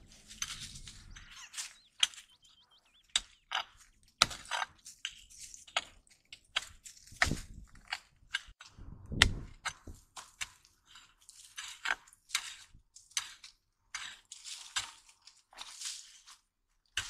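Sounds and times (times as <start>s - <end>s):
pick chopping into stony soil: 3.0s - 10.7s.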